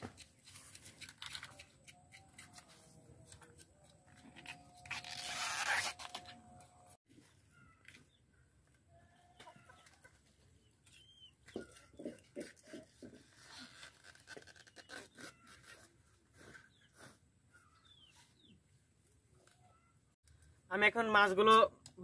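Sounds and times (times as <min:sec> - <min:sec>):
chickens clucking: 0:09.1 - 0:13.3.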